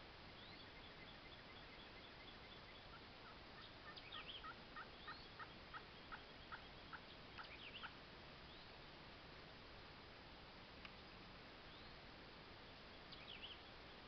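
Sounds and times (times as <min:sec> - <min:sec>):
small birds chirping: 0:00.2 - 0:08.8, 0:11.6 - 0:14.0
faint turkey yelps: 0:01.6 - 0:08.0.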